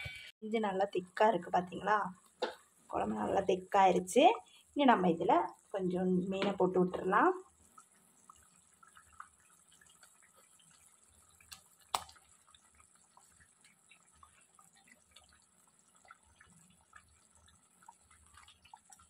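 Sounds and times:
curry bubbling in pot: 0:00.8 - 0:19.0.

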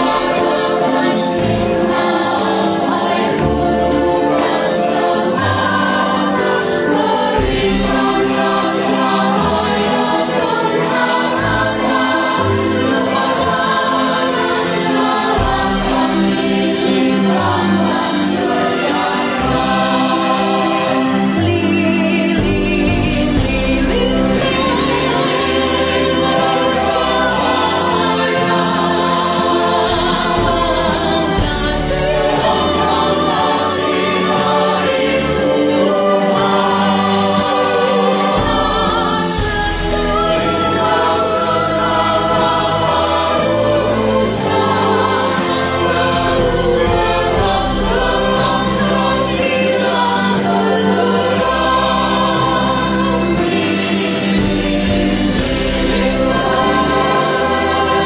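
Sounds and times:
choir singing: 0:00.0 - 0:58.0
instrumental accompaniment: 0:00.0 - 0:58.0.

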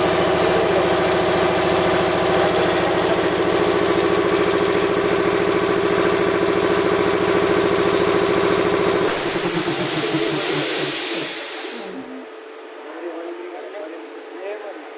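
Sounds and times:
air compressor pounding: 0:00.0 - 0:12.1
air hissing: 0:09.0 - 0:12.2.

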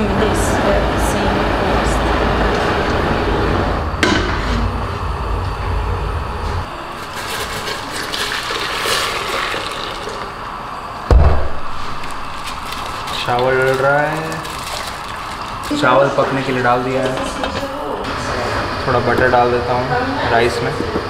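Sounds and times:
water pouring into a metal pot: 0:07.1 - 0:10.4, 0:11.9 - 0:15.9
sharp knock: 0:11.1 - 0:11.7.

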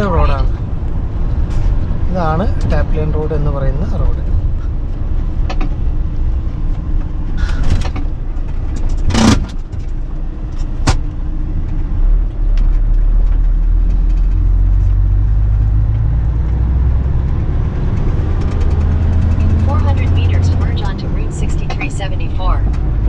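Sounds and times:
truck engine and road rumble: 0:00.0 - 0:23.0
sharp knocks and rattles: 0:06.6 - 0:14.9.

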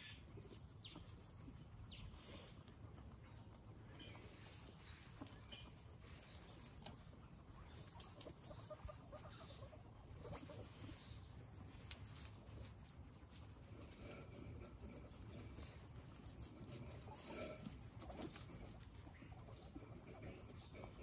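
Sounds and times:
guinea pigs chewing and rustling: 0:00.0 - 0:21.0
guinea pig squeaks: 0:03.9 - 0:12.3.

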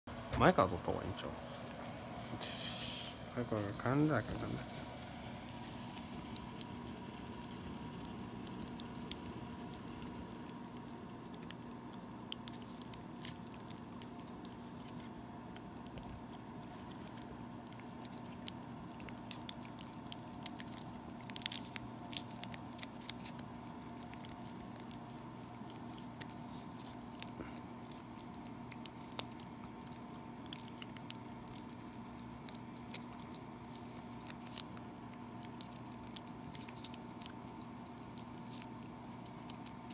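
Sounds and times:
steady low hum: 0:00.1 - 0:39.9.

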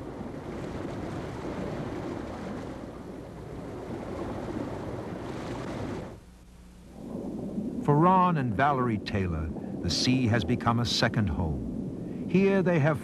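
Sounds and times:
sea: 0:00.0 - 0:13.0
wind: 0:00.0 - 0:13.0.

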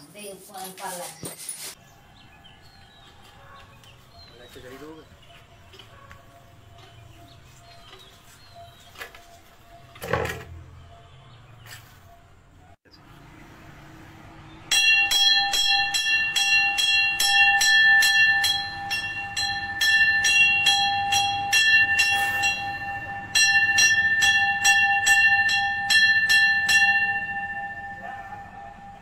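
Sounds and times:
temple bell ringing: 0:14.5 - 0:29.0.

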